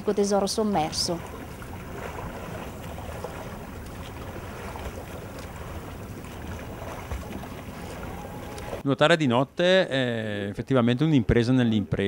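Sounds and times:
water splashing from swimming strokes: 0.0s - 8.8s.

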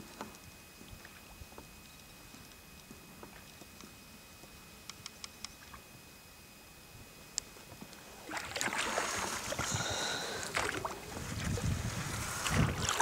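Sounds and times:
water splashing around a boat: 8.0s - 13.0s
rushing water: 11.8s - 13.0s.

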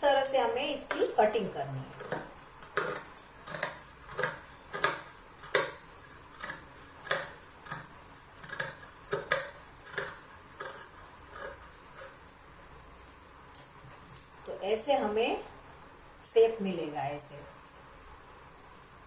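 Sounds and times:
shears snipping fabric: 0.1s - 12.4s.

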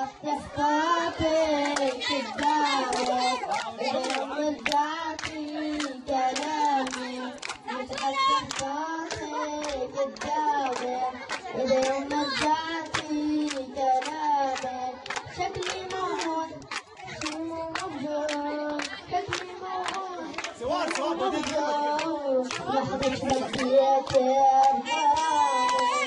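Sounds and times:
boy singing into microphone: 0.0s - 26.0s
people clapping along: 0.0s - 26.0s.

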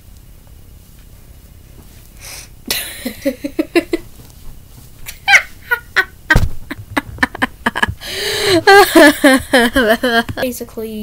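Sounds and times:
boy laughing: 2.7s - 4.0s, 5.1s - 10.5s.

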